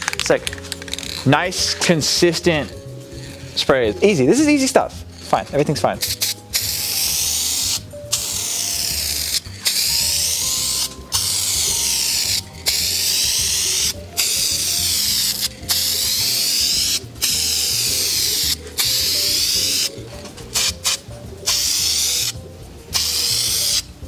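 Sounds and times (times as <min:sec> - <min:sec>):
aerosol spray can hissing: 0:05.9 - 0:23.9.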